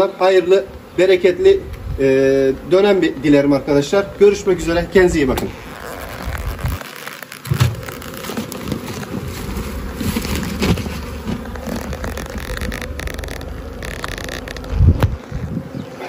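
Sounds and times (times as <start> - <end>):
honeybees buzzing: 0.0 - 16.0
low thumps: 7.5 - 15.8.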